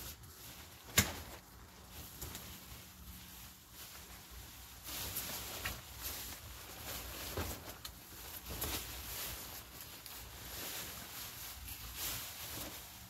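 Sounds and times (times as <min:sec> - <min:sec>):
nylon tent fabric rustling: 0:00.0 - 0:13.0.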